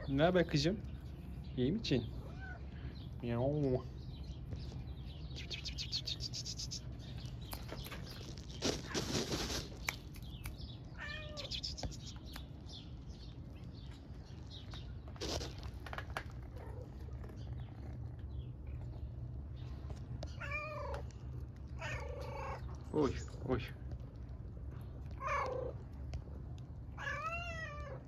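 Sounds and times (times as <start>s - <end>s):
cats meowing: 2.1s - 3.0s, 10.9s - 12.2s, 20.2s - 22.8s, 25.0s - 26.1s, 26.8s - 28.0s
noisy rustle: 4.2s - 20.4s.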